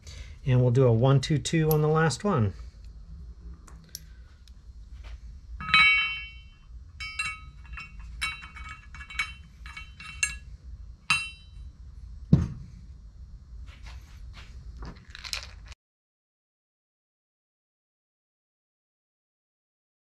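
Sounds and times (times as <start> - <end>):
steel weights clinking: 5.6 - 11.7
dull knock: 12.3 - 12.7.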